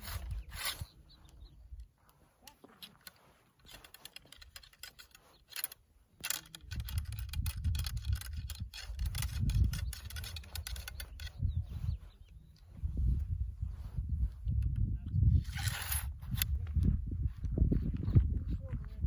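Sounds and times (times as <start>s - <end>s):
cleaning rod scraping in rifle bore: 0.0s - 0.9s, 2.9s - 11.5s, 15.4s - 16.5s.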